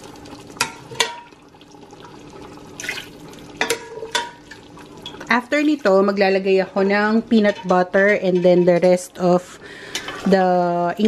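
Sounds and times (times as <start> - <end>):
liquid pouring splash: 2.6 - 3.4.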